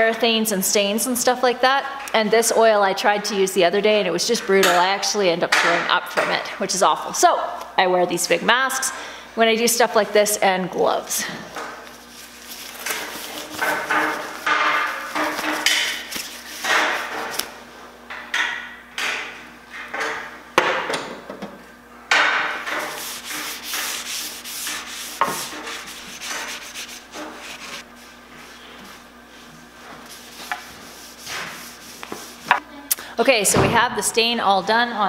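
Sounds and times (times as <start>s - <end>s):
rag rubbing on wooden board: 12.0s - 17.4s, 22.6s - 27.8s, 30.0s - 32.6s.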